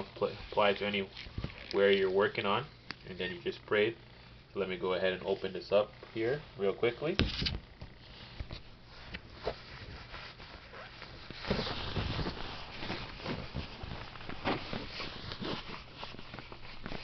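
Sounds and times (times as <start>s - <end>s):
plastic packaging crackling: 0.7s - 2.4s, 9.8s - 17.0s.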